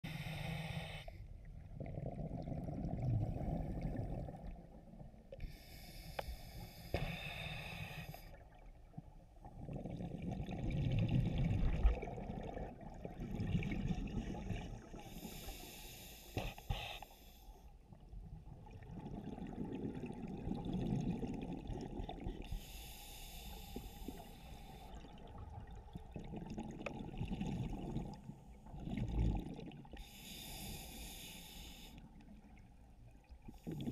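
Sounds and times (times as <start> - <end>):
regulator hissing inhale: 0.1 - 1.2, 5.4 - 8.4, 15.0 - 17.7, 22.5 - 25.0, 30.0 - 32.1
exhaled bubbles rushing: 9.6 - 14.9, 18.5 - 22.4.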